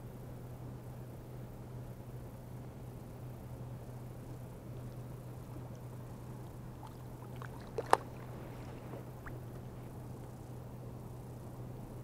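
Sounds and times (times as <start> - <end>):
water splashing and trickling: 4.8 - 9.6.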